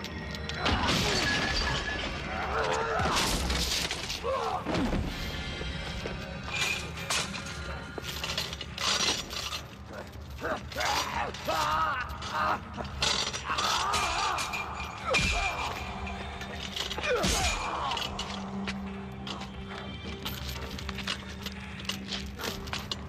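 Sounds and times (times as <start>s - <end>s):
pained cries: 9.9s - 19.8s.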